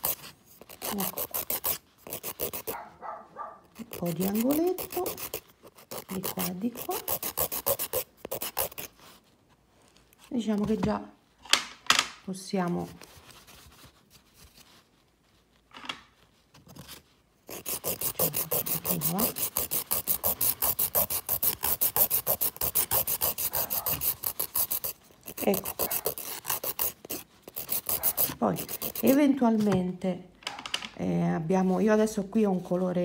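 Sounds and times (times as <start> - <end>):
nail file rasping on fingernail: 0.0 - 2.8, 3.7 - 9.1, 17.4 - 29.4.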